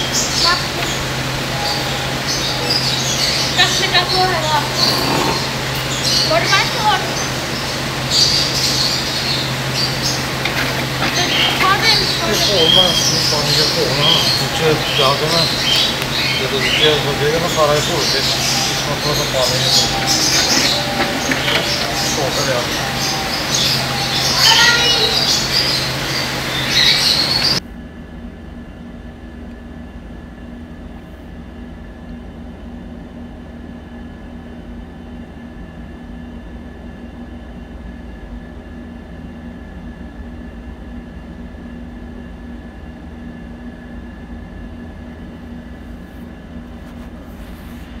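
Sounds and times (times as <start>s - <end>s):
faint high whine: 0.0s - 32.4s
steady low hum: 0.0s - 48.0s.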